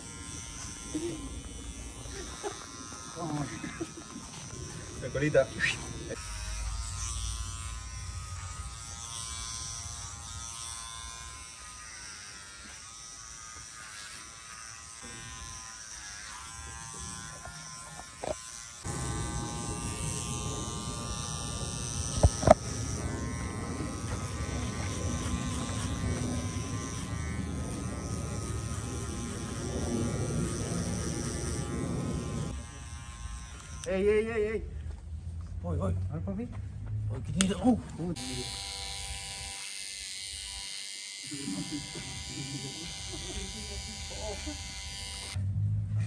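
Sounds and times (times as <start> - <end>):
electric hair clippers buzzing: 0.0 - 34.3, 38.2 - 45.4.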